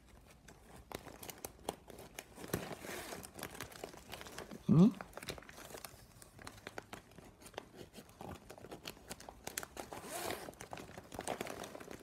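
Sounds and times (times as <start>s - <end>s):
plastic strips crinkling and clicking: 0.0s - 12.0s.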